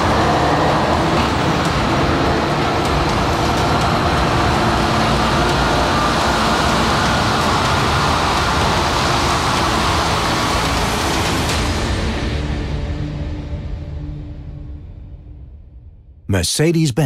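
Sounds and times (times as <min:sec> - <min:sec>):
diesel truck driving by: 0:00.0 - 0:12.1.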